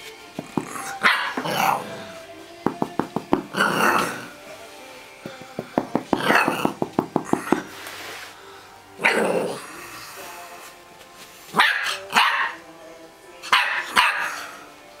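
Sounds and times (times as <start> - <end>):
puppy yapping: 0.7 - 1.8, 11.5 - 12.6, 13.5 - 14.5.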